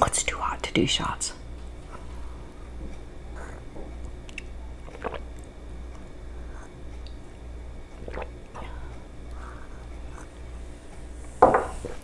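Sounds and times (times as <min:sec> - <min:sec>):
low steady hum: 0:00.0 - 0:12.0
person slurping and swallowing: 0:04.3 - 0:05.5, 0:07.9 - 0:08.8.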